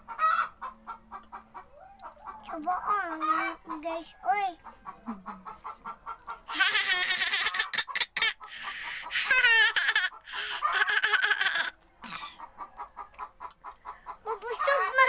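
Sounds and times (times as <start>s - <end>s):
high-pitched laughing and squealing: 6.5s - 12.4s, 14.3s - 15.0s.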